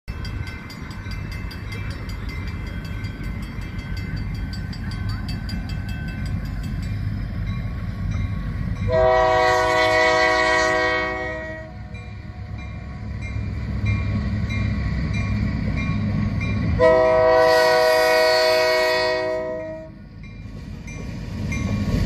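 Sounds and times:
crossing bell ringing rapidly: 0.1 - 9.0, 11.7 - 16.8
locomotive horn chord: 8.9 - 12.1, 16.8 - 20.0.

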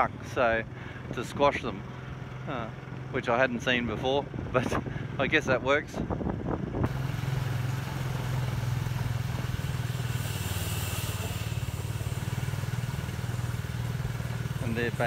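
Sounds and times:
motorbike engine running: 0.0 - 15.0
road noise: 0.0 - 15.0.

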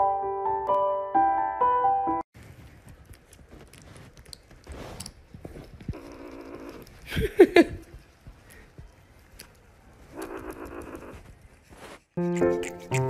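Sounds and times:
kitten licking and chewing: 2.4 - 7.1, 7.8 - 13.0
kitten vocal sound: 10.1 - 11.2, 12.2 - 13.0.

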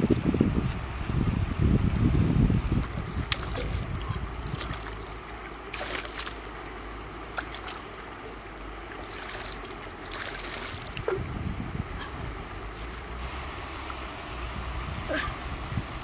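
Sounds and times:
wind rumble on microphone: 0.0 - 5.7, 9.5 - 16.0
water sloshing and splashing: 2.5 - 15.4.

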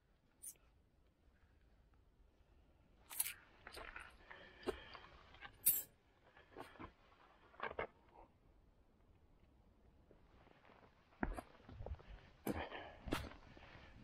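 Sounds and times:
coins clinking on stone: 5.6 - 5.9.

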